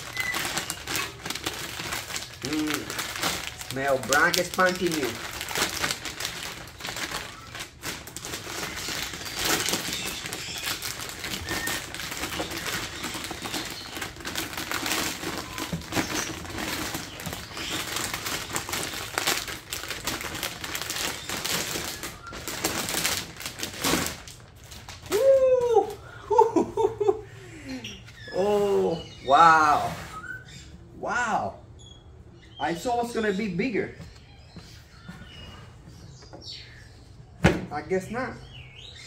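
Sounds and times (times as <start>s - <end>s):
packaging rustling and crinkling: 0.0s - 25.9s.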